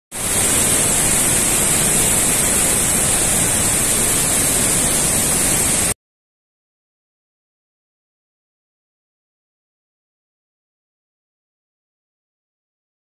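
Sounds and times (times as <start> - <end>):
rushing water: 0.1 - 6.0.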